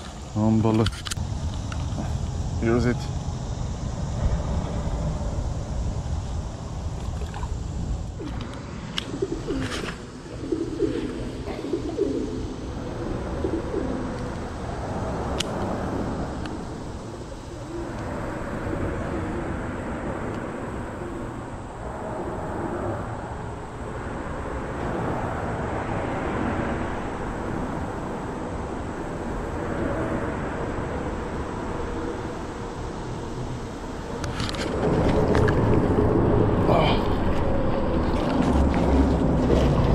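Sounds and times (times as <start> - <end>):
low rumble and hiss: 0.0 - 39.9
pigeon cooing: 9.1 - 14.3, 17.4 - 18.1.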